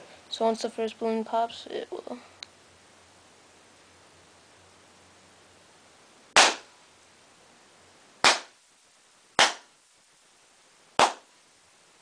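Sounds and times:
balloons bursting with sharp pops: 0:06.3 - 0:06.7, 0:08.2 - 0:08.6, 0:09.4 - 0:09.8, 0:11.0 - 0:11.3.

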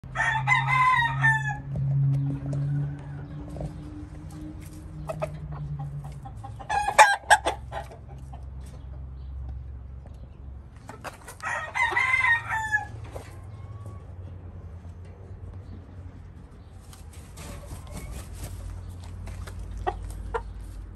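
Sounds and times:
rooster crowing: 0:00.1 - 0:01.8, 0:11.4 - 0:13.9.

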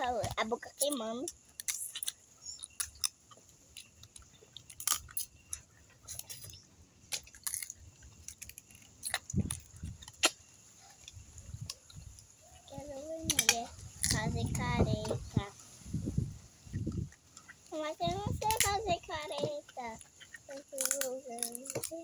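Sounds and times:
chewing: 0:00.2 - 0:12.7, 0:19.3 - 0:22.0
crab shell cracking: 0:01.3 - 0:06.5, 0:07.1 - 0:10.4, 0:20.0 - 0:22.0.

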